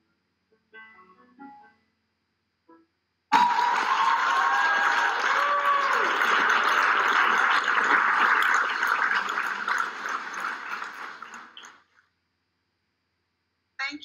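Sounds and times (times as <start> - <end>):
music: 0.0 - 3.0
audience applauding: 3.3 - 11.9.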